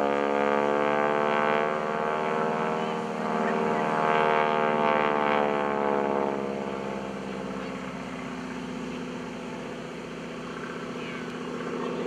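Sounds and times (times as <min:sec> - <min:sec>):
propeller plane engine droning: 0:00.0 - 0:12.0.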